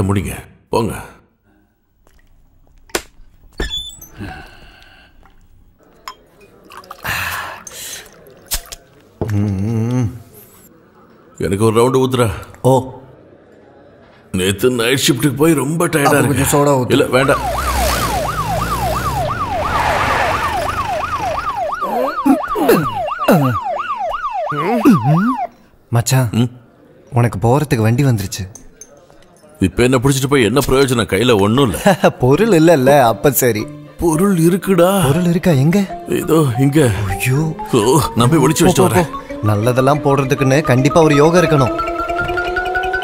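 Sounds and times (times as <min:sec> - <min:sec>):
glassware clinking: 0:05.9 - 0:08.9, 0:28.5 - 0:29.6
liquid poured into glass: 0:06.4 - 0:09.1
police siren wailing: 0:17.0 - 0:25.6.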